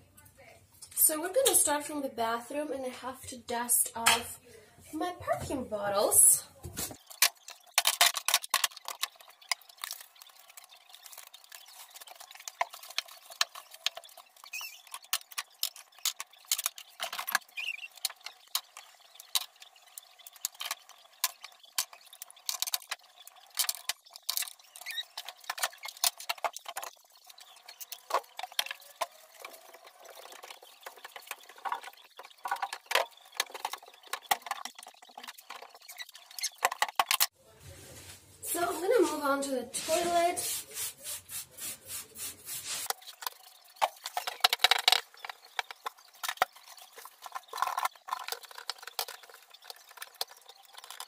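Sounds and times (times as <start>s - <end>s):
glass bottles clicking and tapping: 7.0s - 37.3s, 42.9s - 51.0s.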